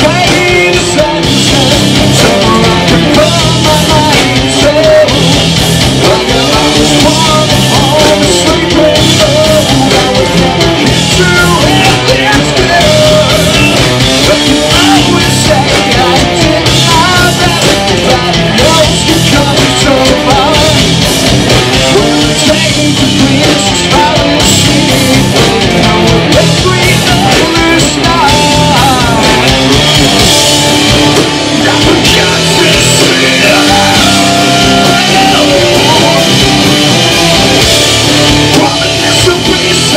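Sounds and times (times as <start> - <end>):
person singing: 0.0 - 21.0, 21.7 - 30.2, 31.5 - 37.7, 38.4 - 39.9
drum kit: 0.0 - 39.9
electric guitars: 0.0 - 39.9.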